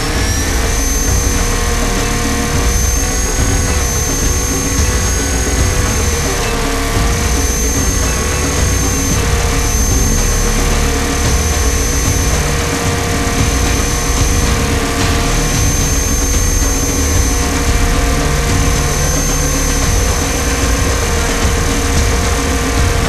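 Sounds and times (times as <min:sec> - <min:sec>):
helicopter drivetrain whine: 0:00.0 - 0:23.0
rotor and airflow rumble: 0:00.0 - 0:23.0.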